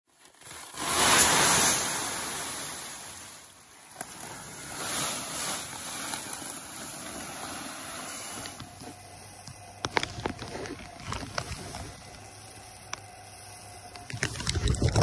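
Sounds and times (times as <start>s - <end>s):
seed pouring into hopper: 0.3s - 8.7s.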